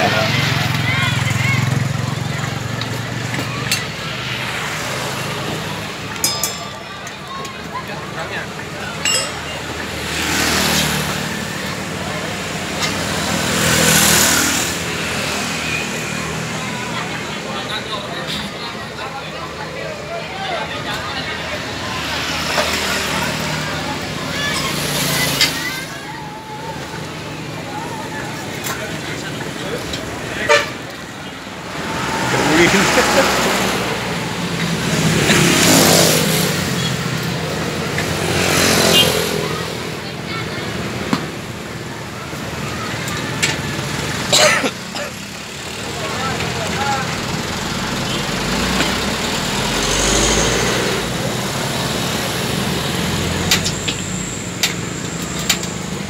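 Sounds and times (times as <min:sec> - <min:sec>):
vehicles passing: 0:00.0 - 0:56.0
vehicle passing by: 0:09.9 - 0:18.2, 0:31.2 - 0:40.0, 0:46.0 - 0:53.5.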